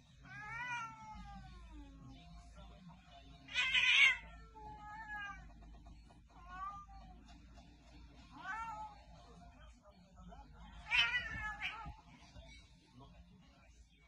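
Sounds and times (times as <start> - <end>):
cat meowing: 0.2 - 1.8, 3.5 - 5.5, 10.8 - 12.0
cat hissing: 3.5 - 5.5.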